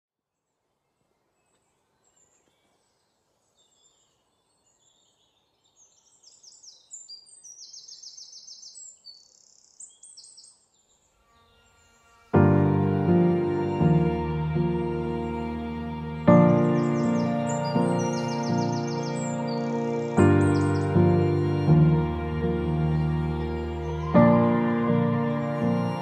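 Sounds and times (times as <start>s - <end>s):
birds chirping: 1.0s - 26.0s
music: 11.2s - 26.0s.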